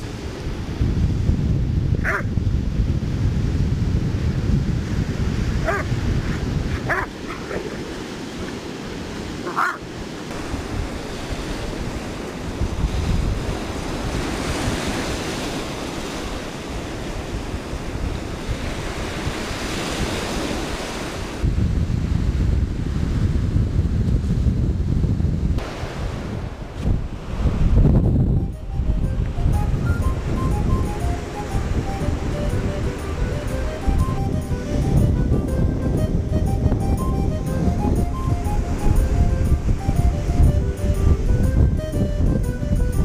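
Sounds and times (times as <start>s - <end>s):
wind buffeting microphone: 0.0s - 43.0s
dog yipping: 2.0s - 2.3s, 5.6s - 5.9s, 6.8s - 7.7s, 9.4s - 9.8s
surf breaking on shore: 4.0s - 23.4s, 25.5s - 36.6s.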